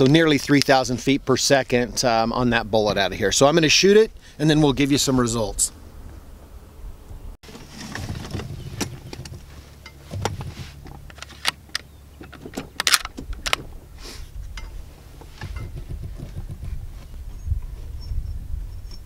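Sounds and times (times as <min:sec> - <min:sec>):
rifle bolt clicking and rattling: 0:11.0 - 0:13.7.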